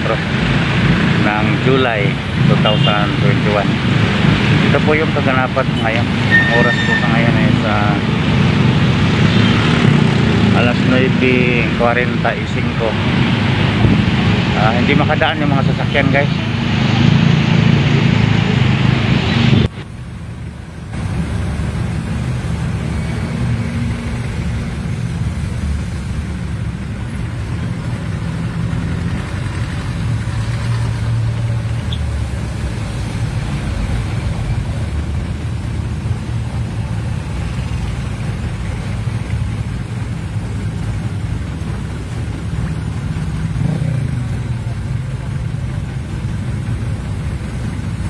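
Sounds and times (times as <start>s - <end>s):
vehicle engine rumble from inside: 19.1s - 48.0s.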